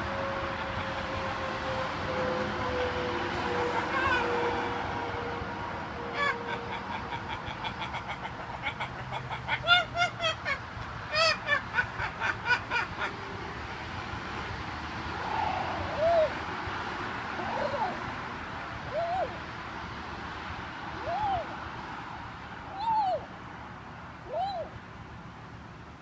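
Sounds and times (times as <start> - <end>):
macaw calling: 6.1 - 13.3.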